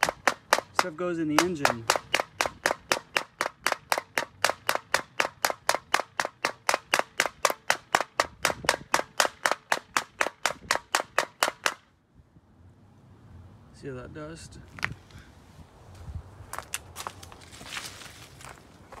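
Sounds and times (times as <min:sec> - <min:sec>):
air filter knocking on concrete: 0:00.0 - 0:11.8.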